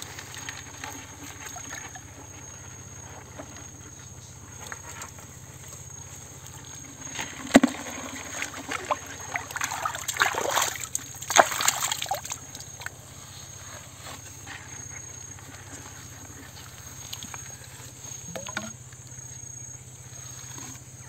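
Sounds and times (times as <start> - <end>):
hand splashing in muddy water: 7.6 - 12.7, 18.2 - 18.8.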